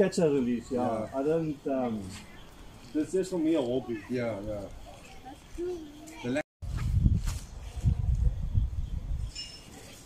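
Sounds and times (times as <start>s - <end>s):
wind buffeting microphone: 6.6s - 9.4s
faint high chirp: 8.3s - 10.0s.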